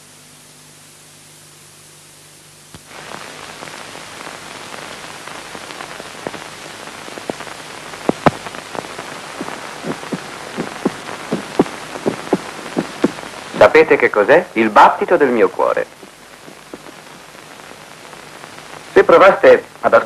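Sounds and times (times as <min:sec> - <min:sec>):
steady hiss: 0:00.0 - 0:20.0
amplified heartbeat: 0:07.2 - 0:13.6, 0:16.0 - 0:17.1.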